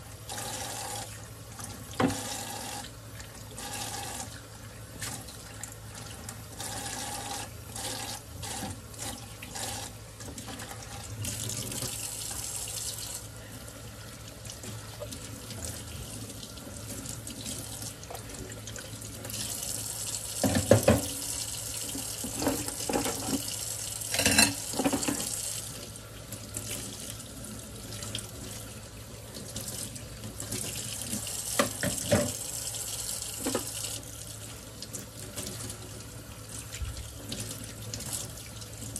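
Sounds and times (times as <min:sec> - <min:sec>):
faucet running into sink: 0:00.2 - 0:13.3, 0:14.1 - 0:38.9.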